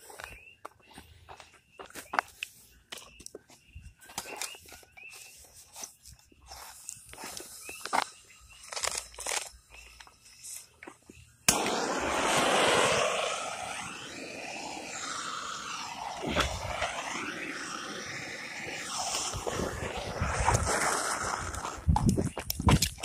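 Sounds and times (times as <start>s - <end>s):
fuse hissing: 11.5s - 21.9s.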